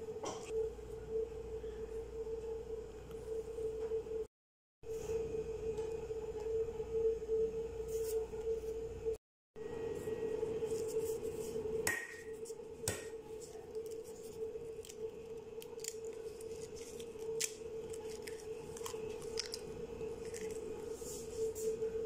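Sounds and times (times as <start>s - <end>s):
egg shell cracking: 14.8s - 20.6s.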